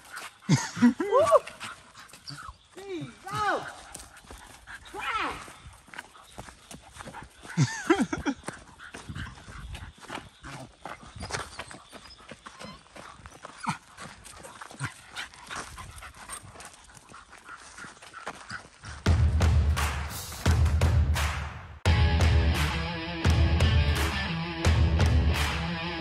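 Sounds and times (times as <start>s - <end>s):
footsteps clicking and scuffing: 0.0s - 19.6s.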